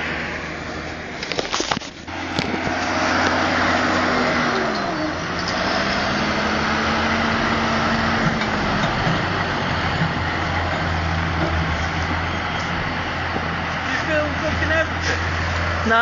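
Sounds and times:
tractor engine under load: 0:00.0 - 0:16.0.

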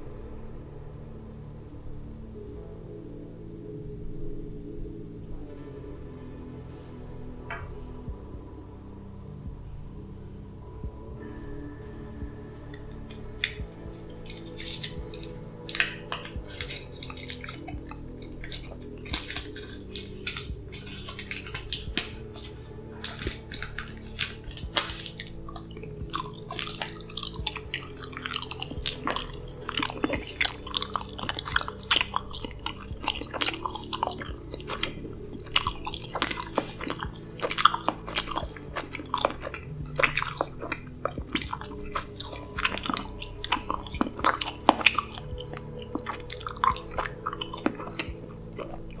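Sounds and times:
background music drone: 0:00.0 - 0:49.0
chewing gum mouth sounds: 0:12.1 - 0:49.0.

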